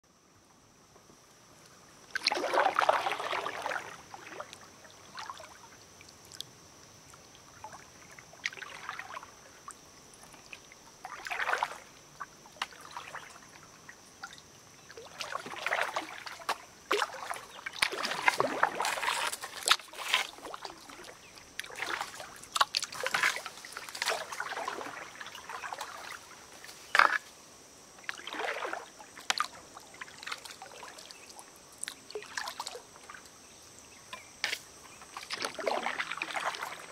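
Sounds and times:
paddle splashing in water: 2.1 - 5.6, 7.5 - 27.3, 28.0 - 33.3, 33.9 - 36.9.

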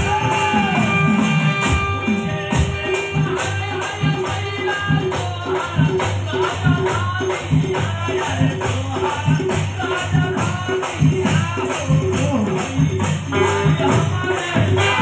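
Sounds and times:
drum hits: 0.0 - 8.0
jingling percussion: 0.0 - 15.0
keyboard accompaniment: 0.0 - 15.0
person singing: 0.0 - 15.0.

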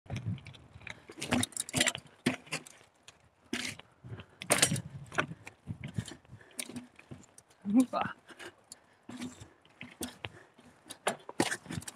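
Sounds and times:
mountain bike rattling over trail: 0.2 - 7.6.

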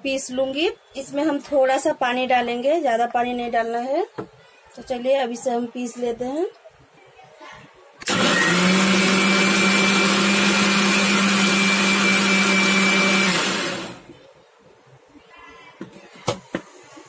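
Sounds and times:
mixer grinder running: 8.0 - 14.1
mixer grinder spinning down: 8.0 - 14.1.

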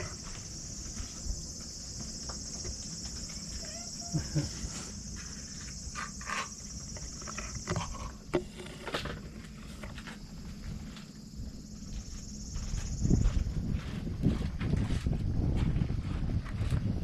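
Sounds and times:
insects shrilling: 0.0 - 13.2
wind rumble on microphone: 10.5 - 17.0.

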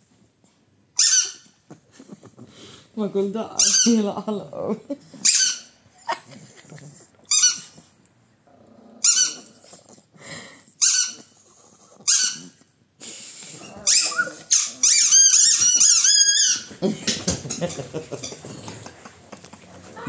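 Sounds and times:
squeaky toy ball squeaks: 1.0 - 1.5, 3.6 - 4.0, 5.2 - 5.7, 7.3 - 7.8, 9.0 - 9.6, 10.8 - 11.4, 12.1 - 12.6, 13.8 - 16.7.

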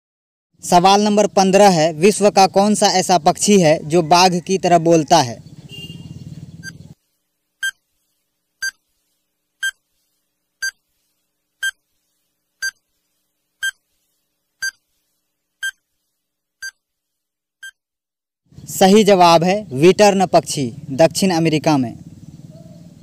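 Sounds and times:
short electronic beeps: 6.6 - 6.8.

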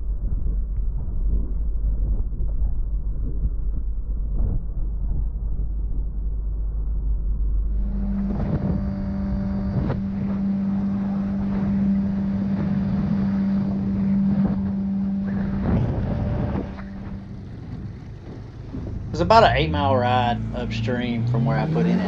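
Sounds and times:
wind on microphone: 0.0 - 6.3, 7.7 - 22.0
outboard motor running: 7.6 - 22.0.

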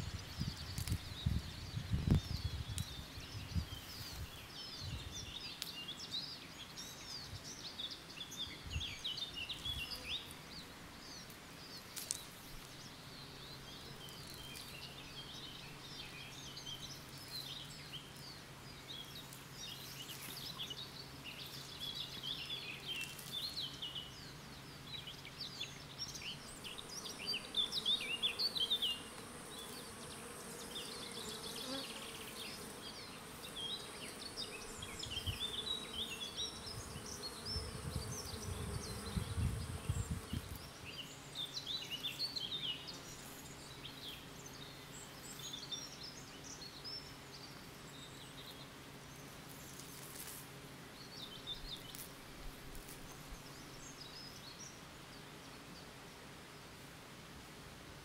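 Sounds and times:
birds chirping and trilling: 0.0 - 50.0
honeybees buzzing: 9.5 - 45.5.

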